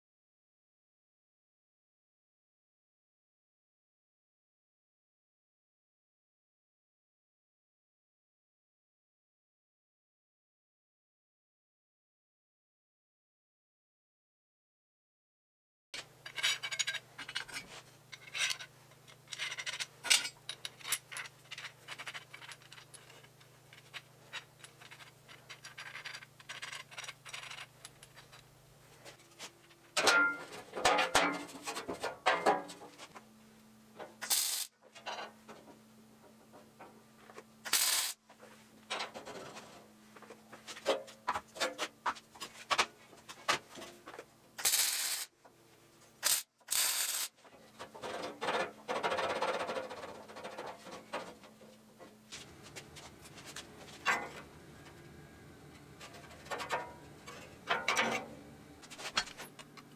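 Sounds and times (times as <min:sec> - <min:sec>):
steel parts clinking: 0:16.0 - 0:28.5, 0:34.2 - 0:35.3, 0:37.6 - 0:38.2, 0:44.6 - 0:45.3, 0:46.2 - 0:47.3
faint steady hum: 0:16.0 - 0:44.6, 0:49.8 - 0:59.9
arc welding crackle: 0:34.2 - 0:34.7, 0:37.7 - 0:38.2, 0:44.6 - 0:45.3, 0:46.2 - 0:47.3.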